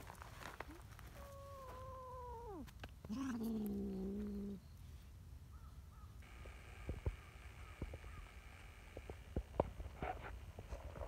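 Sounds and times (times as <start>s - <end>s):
cat yowling: 1.1s - 4.6s.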